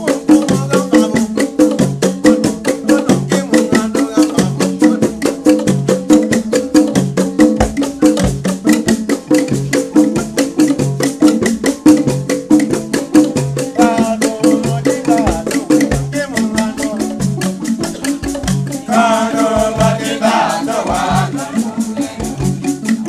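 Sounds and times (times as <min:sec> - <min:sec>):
low bass pattern: 0:00.0 - 0:23.0
rattle shaken in fast beat: 0:00.0 - 0:23.0
voices singing: 0:02.4 - 0:05.3, 0:13.7 - 0:22.8.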